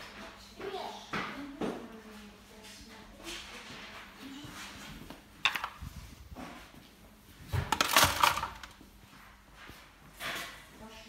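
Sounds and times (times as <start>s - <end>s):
plastic toys clattering in sink: 5.4s - 6.0s, 7.5s - 8.8s
plastic bag rustling: 7.6s - 8.8s.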